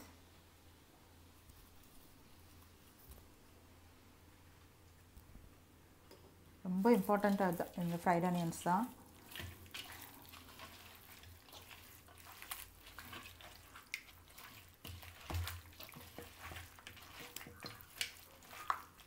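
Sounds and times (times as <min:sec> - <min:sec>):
hand squelching meat in marinade: 0:06.9 - 0:19.0.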